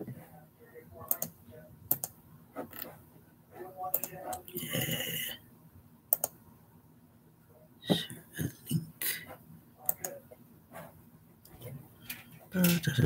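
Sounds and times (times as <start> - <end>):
computer keyboard clicks: 6.2 - 6.4.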